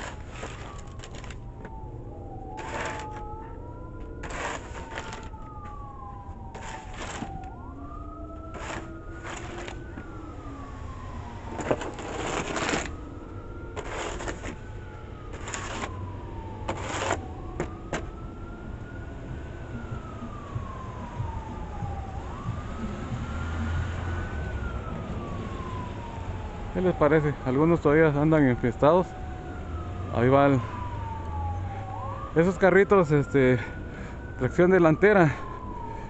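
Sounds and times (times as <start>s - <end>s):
snow shovel scraping concrete: 0.0s - 1.4s, 2.6s - 3.2s, 4.2s - 5.3s, 6.6s - 7.3s, 8.5s - 9.8s, 11.6s - 12.9s, 13.8s - 14.6s, 15.3s - 15.9s, 16.7s - 17.2s
low vehicle rumble: 0.0s - 26.6s
siren wailing: 0.0s - 36.0s.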